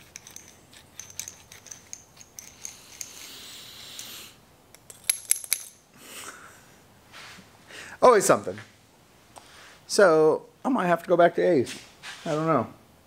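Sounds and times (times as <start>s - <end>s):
small metal parts clicking: 0.0s - 5.8s
soft rustle: 7.0s - 7.6s, 11.6s - 12.6s.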